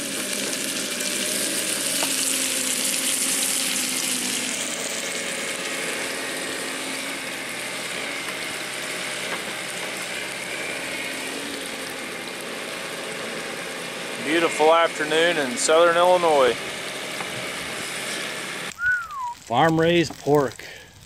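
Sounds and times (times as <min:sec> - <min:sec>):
meat sizzling in a frying pan: 0:00.0 - 0:21.0.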